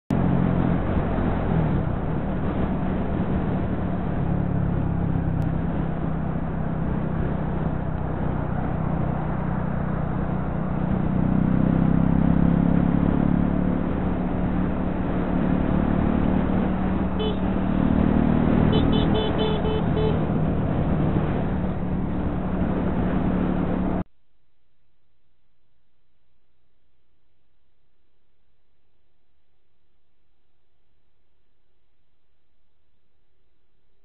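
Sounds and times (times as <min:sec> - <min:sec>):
vehicle engine and road noise: 0:00.1 - 0:24.1.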